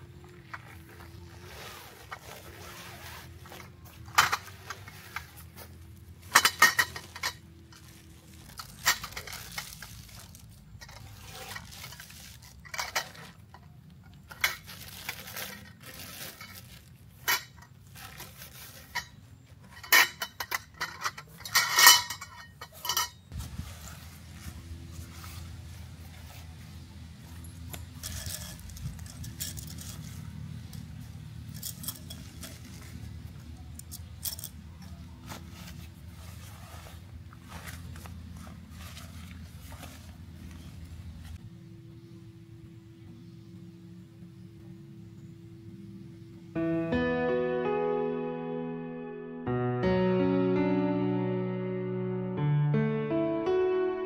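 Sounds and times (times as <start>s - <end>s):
hard objects clinking and clattering: 3.6s - 23.3s, 27.4s - 35.4s.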